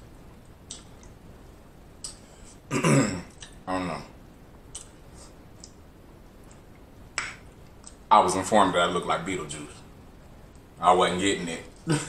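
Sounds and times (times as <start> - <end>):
man clearing his throat: 2.7 - 3.8.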